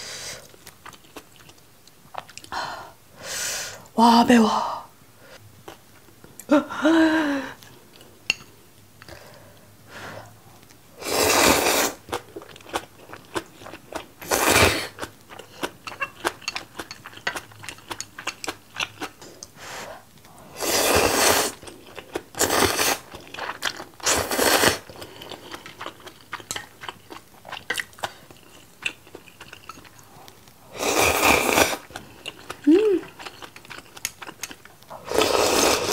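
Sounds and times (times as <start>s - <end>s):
crunchy chewing: 21.5s - 35.9s
person humming: 32.6s - 33.1s
loud slurps: 35.0s - 35.9s.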